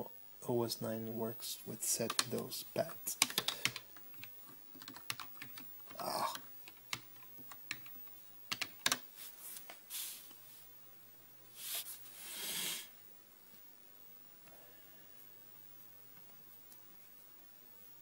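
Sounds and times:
keyboard keys clicking: 2.1s - 2.4s, 3.2s - 6.0s, 6.7s - 9.0s.

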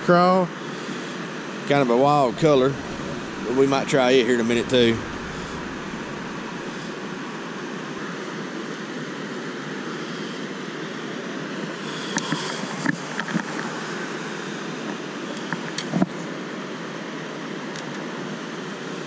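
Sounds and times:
rushing background noise: 1.7s - 8.0s.

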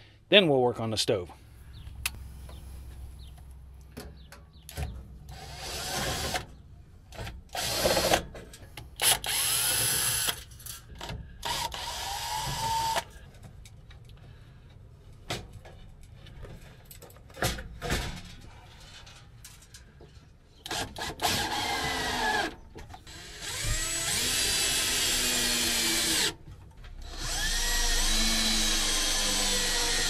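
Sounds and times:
cordless drill driving screws: 5.3s - 6.5s, 7.5s - 8.3s, 9.0s - 10.5s, 11.4s - 13.1s, 20.6s - 26.4s, 27.0s - 30.0s.

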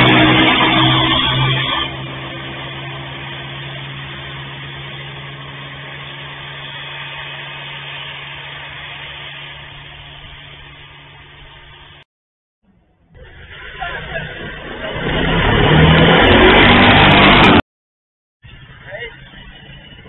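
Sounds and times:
small engines running: 0.0s - 12.1s, 12.7s - 17.6s.

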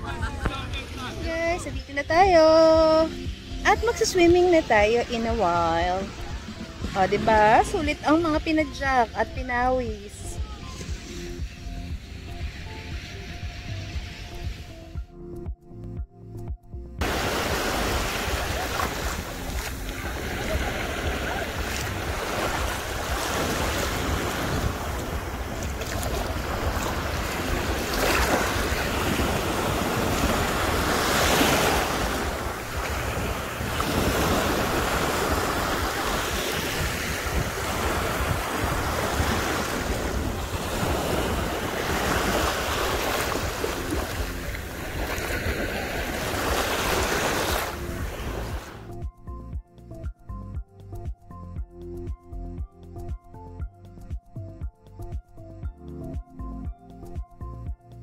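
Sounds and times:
wind rumbling on microphone: 16.8s - 49.1s
small waves washing on sand: 17.0s - 48.8s.

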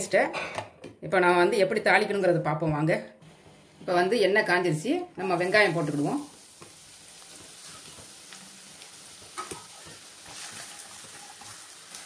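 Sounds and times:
onions sizzling in hot oil: 5.2s - 12.0s
wooden spatula scraping: 9.2s - 12.0s.

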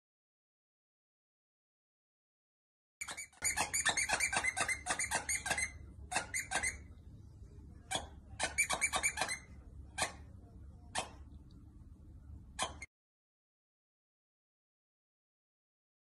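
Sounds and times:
squeaky dog toy squeaking: 3.0s - 6.9s, 7.9s - 10.3s, 10.9s - 11.2s, 12.6s - 12.9s.

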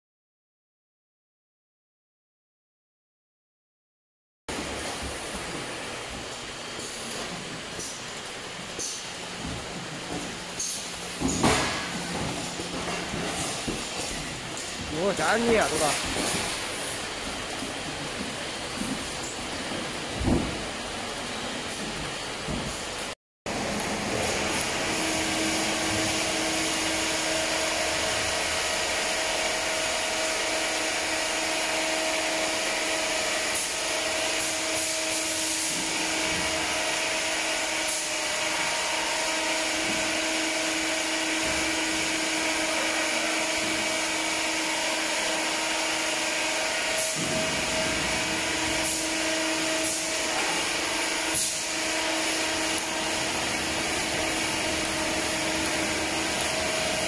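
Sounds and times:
machine whirring hiss: 4.6s - 57.0s.

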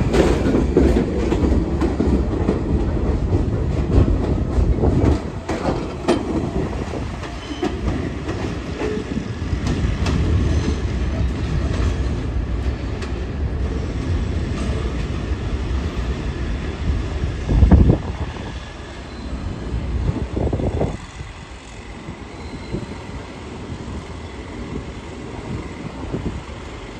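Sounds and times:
train wheels rumbling and clattering: 0.0s - 26.9s.

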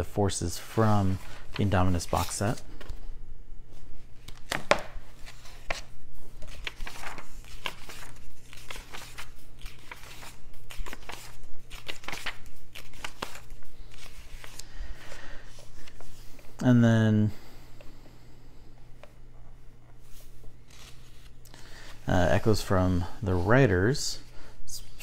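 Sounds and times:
magazine pages turning: 0.6s - 3.1s, 3.8s - 14.8s, 20.0s - 22.6s.

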